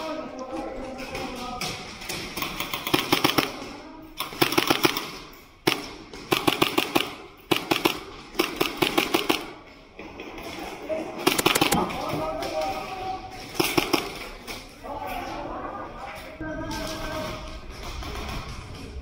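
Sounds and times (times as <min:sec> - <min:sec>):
airsoft guns firing bursts: 0:02.3 - 0:09.6, 0:11.2 - 0:12.0, 0:13.4 - 0:14.3.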